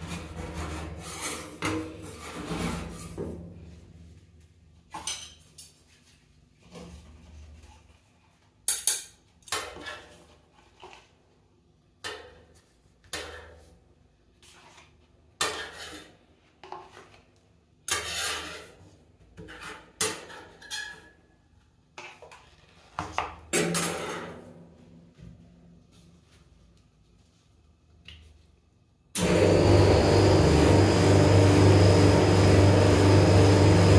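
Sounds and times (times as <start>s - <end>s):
spatulas scraping steel plate: 0.0s - 3.2s, 17.9s - 18.8s.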